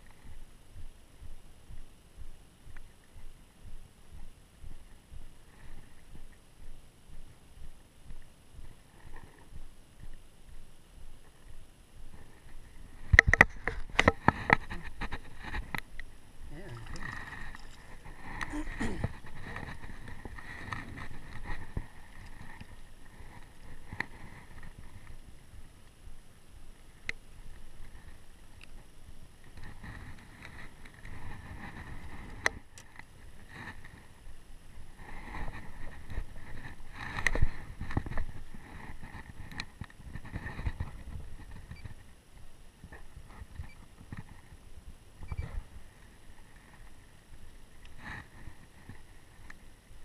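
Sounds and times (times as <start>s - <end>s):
water and handling noise: 16.5s - 24.6s.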